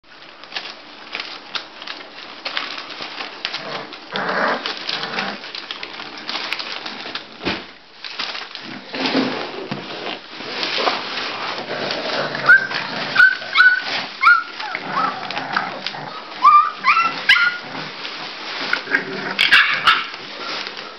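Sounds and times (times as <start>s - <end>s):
rustling paper: 0.0s - 20.9s
puppies grunting: 2.7s - 6.3s, 11.6s - 20.9s
puppy whimpering: 12.4s - 17.8s.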